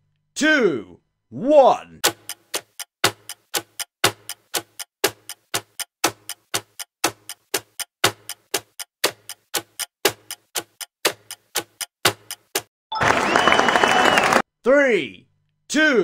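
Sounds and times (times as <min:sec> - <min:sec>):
clock ticking: 0:02.0 - 0:12.7.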